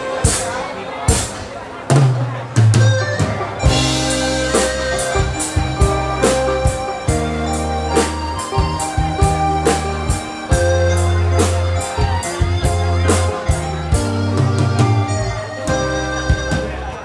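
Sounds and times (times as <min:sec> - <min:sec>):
instrumental band music: 0:00.0 - 0:17.0
drum beat: 0:01.1 - 0:15.0.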